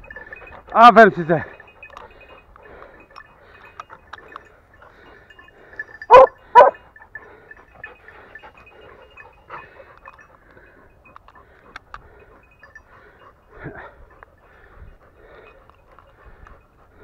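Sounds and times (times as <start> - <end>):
dog barking: 6.1 - 6.8.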